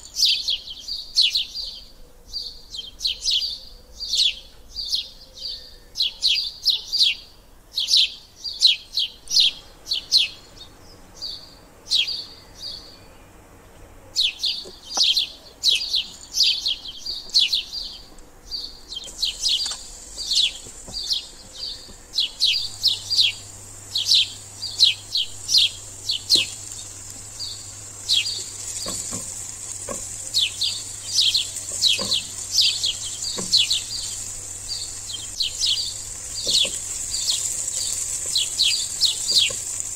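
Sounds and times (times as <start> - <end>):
small bird chirping: 0.0 - 39.9
onion and garlic sizzling: 9.1 - 39.9
spatula knocking on pan: 28.8 - 30.2, 31.7 - 32.3.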